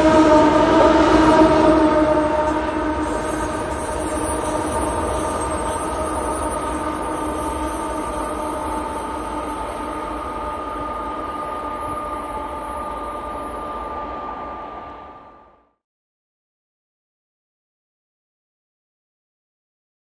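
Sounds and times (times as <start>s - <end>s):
train rumbling along rails: 0.0s - 15.6s.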